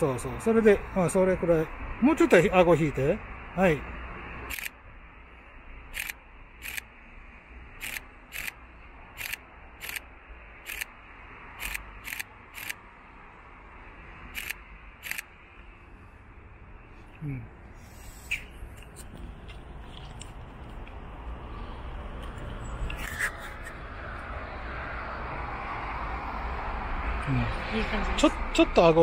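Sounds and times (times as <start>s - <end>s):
camera shutter clicks: 4.5s - 4.8s, 6.0s - 6.8s, 7.8s - 8.6s, 9.2s - 10.0s, 10.7s - 10.9s, 11.6s - 12.8s, 14.4s - 15.3s.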